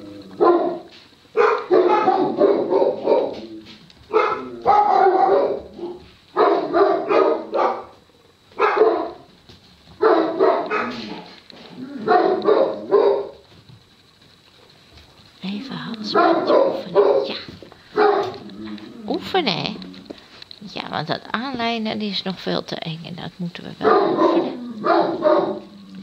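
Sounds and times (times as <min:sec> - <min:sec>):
dog barking: 0:00.4 - 0:03.4, 0:04.1 - 0:08.0, 0:08.6 - 0:09.3, 0:10.0 - 0:11.3, 0:12.0 - 0:13.4, 0:16.1 - 0:18.4, 0:23.8 - 0:25.7.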